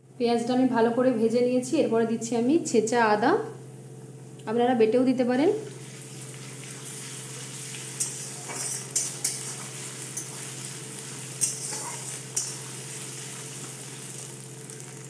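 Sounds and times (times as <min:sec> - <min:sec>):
onion sizzling in hot oil: 0:05.6 - 0:15.0
metal spatula scraping pan: 0:07.6 - 0:12.9.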